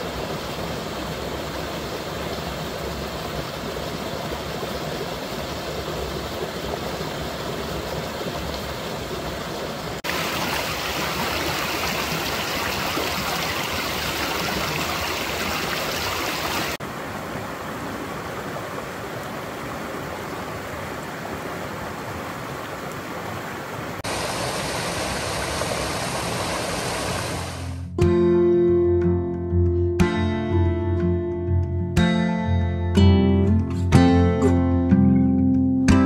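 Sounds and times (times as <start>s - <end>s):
small waterfall pouring into pool: 0.0s - 16.8s, 17.4s - 27.7s
stream rushing over rocks: 0.0s - 27.8s.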